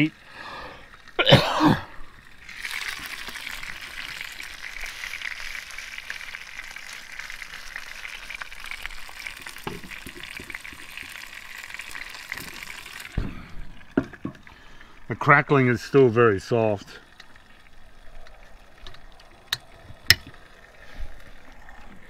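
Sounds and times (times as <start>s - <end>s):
meat sizzling in a pan: 2.4s - 13.2s.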